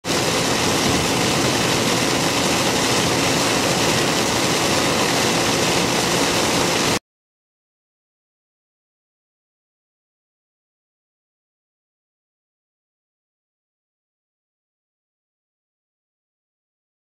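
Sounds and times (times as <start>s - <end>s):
vehicle driving on wet road: 0.0s - 7.0s.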